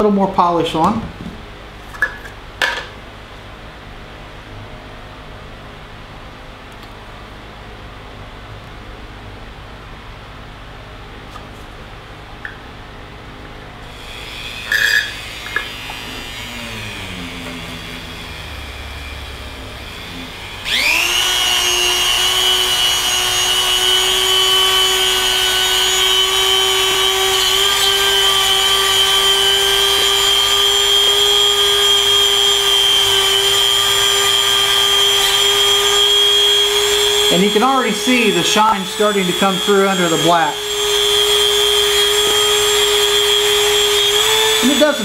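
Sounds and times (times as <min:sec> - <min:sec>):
rotary tool whining: 0:13.8 - 0:45.0.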